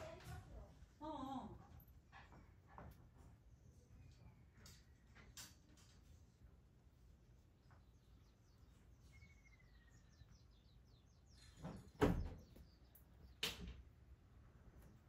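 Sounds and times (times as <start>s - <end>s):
faint bird chirps: 7.5s - 13.4s.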